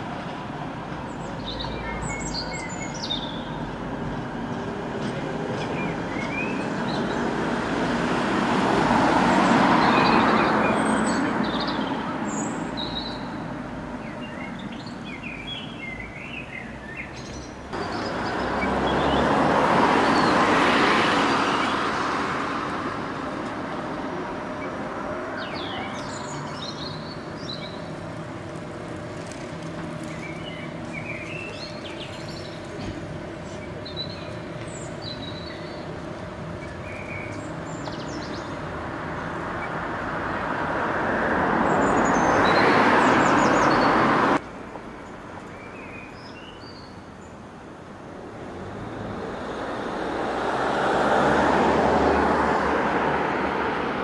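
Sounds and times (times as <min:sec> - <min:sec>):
street traffic: 0:00.0 - 0:54.0
vehicles passing: 0:00.0 - 0:54.0
small birds chirping: 0:01.1 - 0:03.6, 0:09.8 - 0:19.3, 0:25.4 - 0:28.1, 0:29.4 - 0:39.8.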